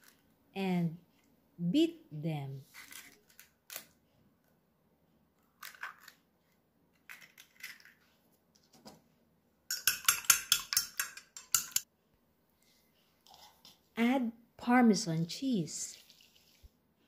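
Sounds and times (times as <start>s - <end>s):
eggshell taps and clicks: 9.7s - 11.8s
fork beating eggs in a plate: 9.7s - 11.9s.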